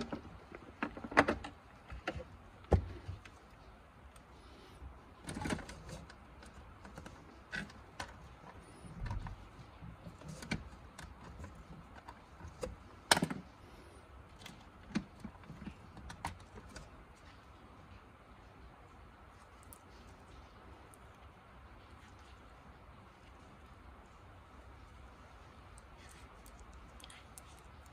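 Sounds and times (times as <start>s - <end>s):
plastic parts clicking and knocking: 0.0s - 3.6s, 5.2s - 13.6s, 14.3s - 17.3s.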